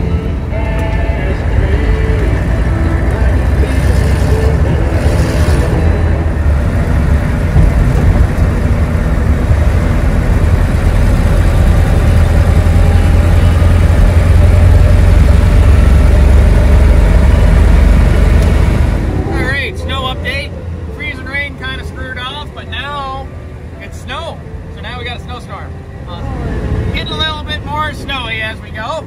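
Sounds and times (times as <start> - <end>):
diesel engine drone: 0.0 - 29.0
tyre and road noise: 0.0 - 29.0.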